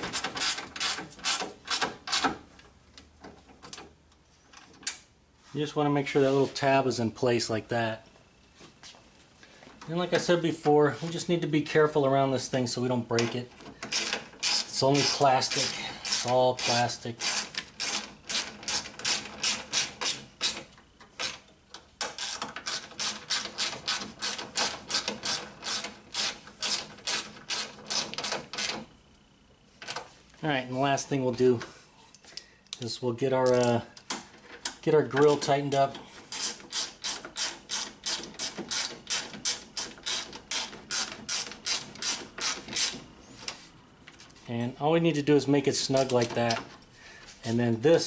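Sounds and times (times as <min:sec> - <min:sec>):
hand ratchet clicking: 0:00.0 - 0:02.3, 0:13.8 - 0:28.8, 0:33.4 - 0:43.0.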